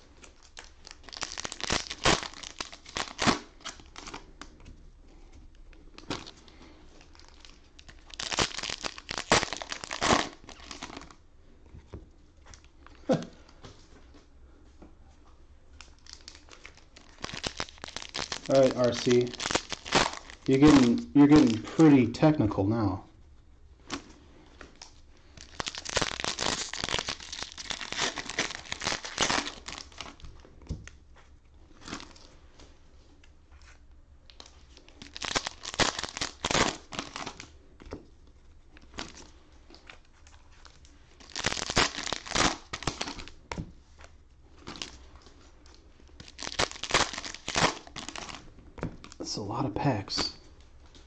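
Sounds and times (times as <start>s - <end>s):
cellophane wrappers crinkling: 0.0s - 4.6s, 5.8s - 11.2s, 15.8s - 22.1s, 23.8s - 30.4s, 31.2s - 32.4s, 34.3s - 37.6s, 38.3s - 49.2s.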